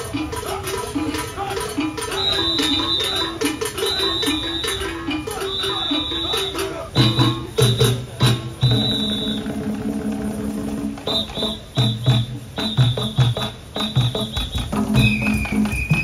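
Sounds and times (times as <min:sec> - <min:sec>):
hand drums playing: 0:00.0 - 0:16.0
short high whistle blasts: 0:02.1 - 0:09.6, 0:11.0 - 0:13.2, 0:13.8 - 0:16.0.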